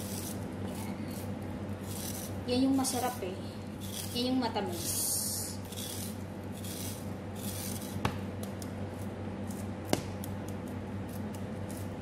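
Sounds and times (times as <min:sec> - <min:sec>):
knife scraping corn cob: 0:00.0 - 0:03.2, 0:03.8 - 0:08.0, 0:11.0 - 0:12.0.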